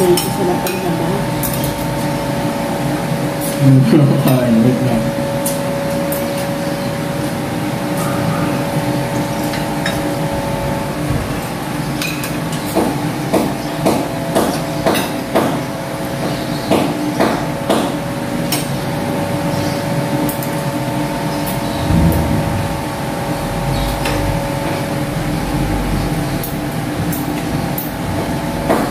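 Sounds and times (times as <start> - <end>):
mechanical hum: 0.0 - 28.9
sharp ringing knocks: 21.8 - 24.9.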